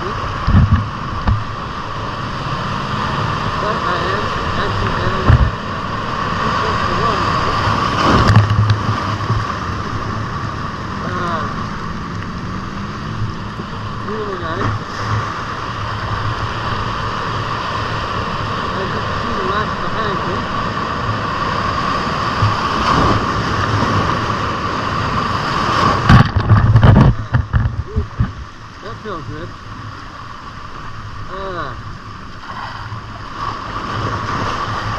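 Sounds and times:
surf washing among rocks: 0:00.0 - 0:34.9
thump on microphone: 0:00.4 - 0:01.5, 0:05.2 - 0:05.6, 0:08.1 - 0:09.5, 0:26.0 - 0:28.4.

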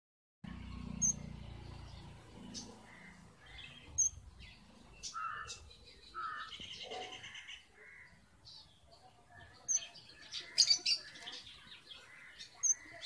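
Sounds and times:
finches chirping: 0:01.8 - 0:08.2, 0:09.4 - 0:13.0.

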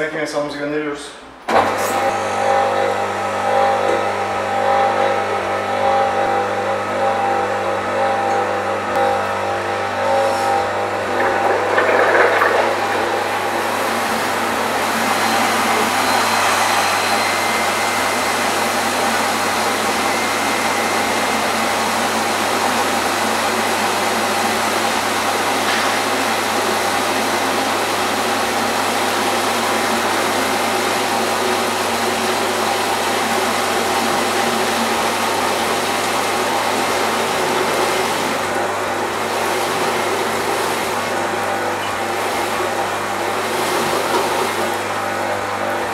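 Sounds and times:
water jets hissing: 0:09.9 - 0:21.2.

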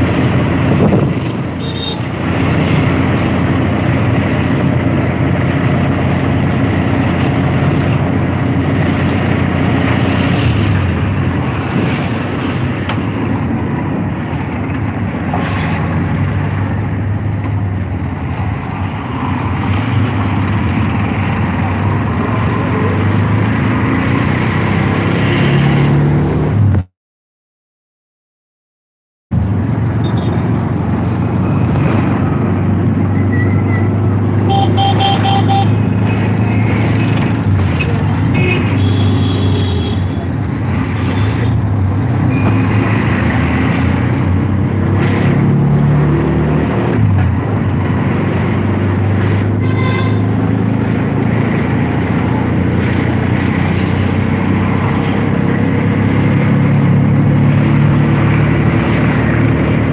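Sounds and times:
vehicle engine and road noise: 0:00.0 - 0:26.9, 0:29.3 - 0:59.9
short horn toots: 0:34.5 - 0:35.8.

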